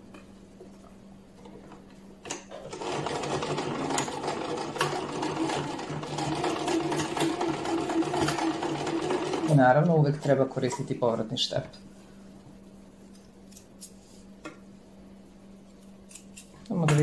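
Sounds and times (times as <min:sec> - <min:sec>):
sewing machine stitching: 0:02.5 - 0:09.7.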